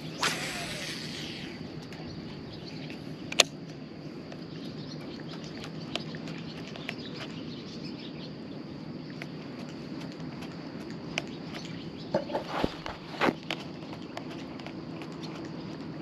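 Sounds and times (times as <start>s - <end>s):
low steady hum: 0.0s - 16.0s.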